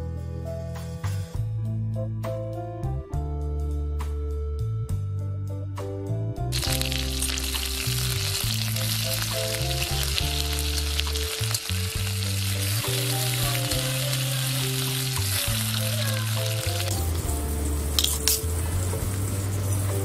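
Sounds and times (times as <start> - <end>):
background music: 0.0 - 20.0
oil sizzling: 6.5 - 20.0.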